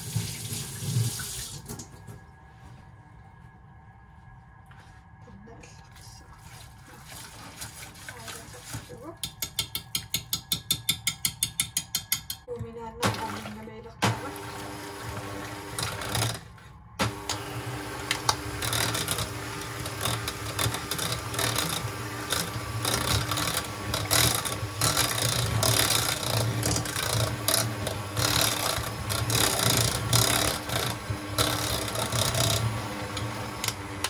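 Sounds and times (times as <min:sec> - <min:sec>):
beaters scraping steel pot: 0:07.8 - 0:34.0
electric hand mixer running: 0:13.0 - 0:34.0.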